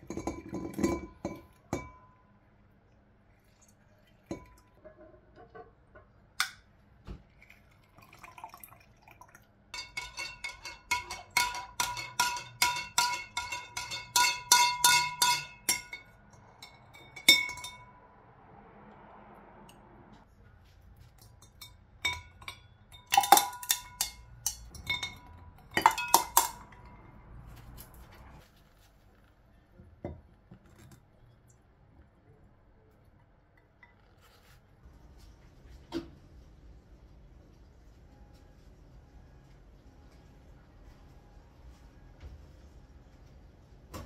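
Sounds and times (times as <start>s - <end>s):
spoon clinking against glass: 9.8s - 17.9s, 21.4s - 26.9s.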